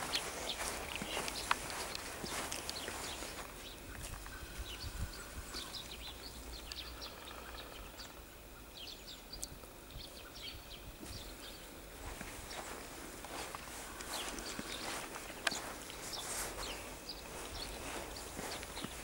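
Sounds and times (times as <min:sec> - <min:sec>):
footsteps crunching in snow: 0:00.0 - 0:06.5, 0:11.0 - 0:19.0.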